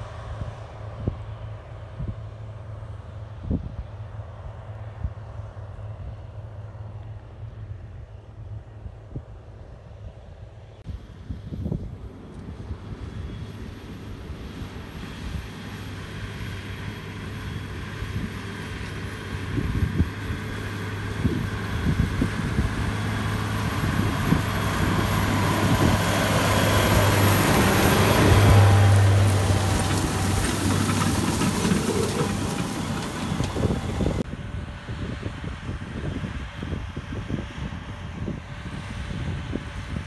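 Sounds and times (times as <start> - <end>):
farm machine engine running: 12.0 - 35.6.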